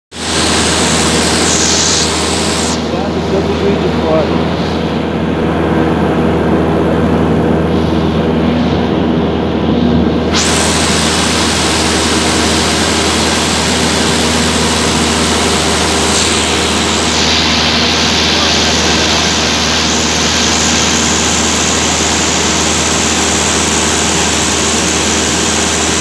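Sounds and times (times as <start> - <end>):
propeller plane engine droning: 0.1 - 26.0
rush of air: 7.3 - 23.6.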